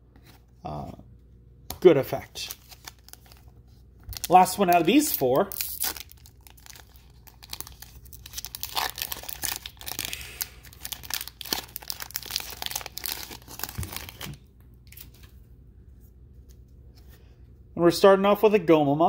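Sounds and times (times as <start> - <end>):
foil wrapper crinkling and tearing: 2.3 - 3.5, 4.1 - 15.2.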